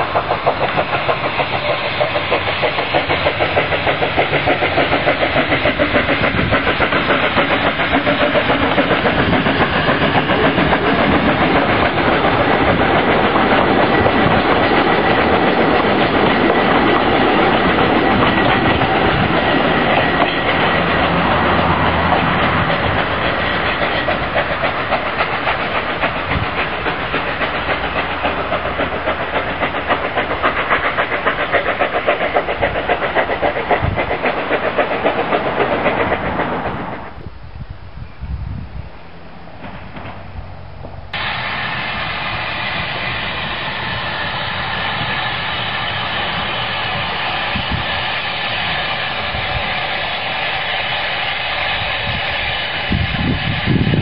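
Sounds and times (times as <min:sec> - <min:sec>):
steam locomotive chuffing: 0:00.0 - 0:54.0.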